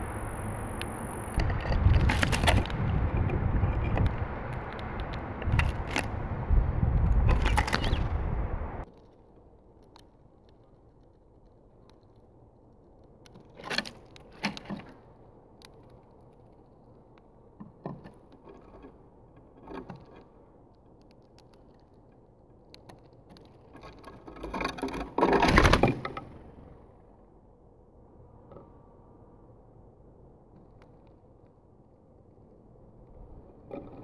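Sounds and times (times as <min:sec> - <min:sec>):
birds pecking seed: 0:00.0 - 0:26.9
fluttering wingbeats: 0:07.3 - 0:08.2.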